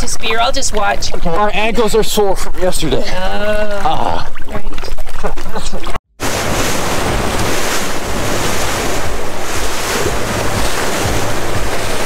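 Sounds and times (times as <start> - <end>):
wake churning along hull: 4.4 - 12.0
wind on microphone: 6.2 - 12.0.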